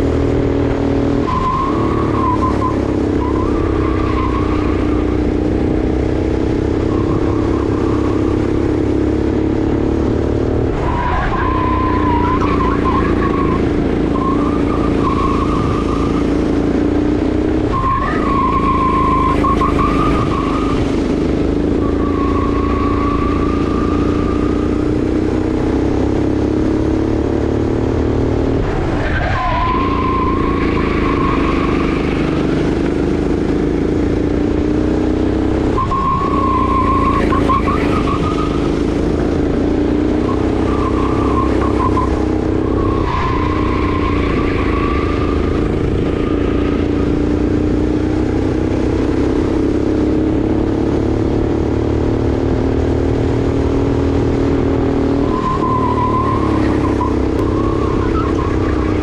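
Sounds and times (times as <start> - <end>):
kart engine running hard: 0.0 - 59.0
tyres squealing: 10.8 - 16.9, 17.6 - 24.9, 28.9 - 33.1, 35.6 - 47.1, 55.2 - 59.0.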